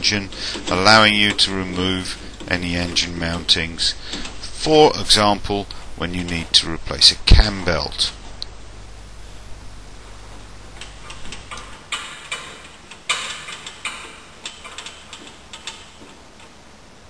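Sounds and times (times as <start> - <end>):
metal scraping rasps: 0.0 - 16.6
metallic clicks: 10.6 - 16.6.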